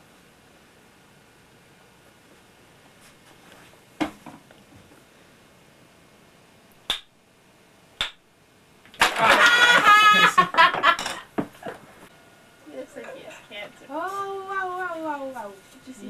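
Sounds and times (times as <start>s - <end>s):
wooden block tower collapsing: 9.0s - 10.2s
voices crying out: 9.0s - 10.6s.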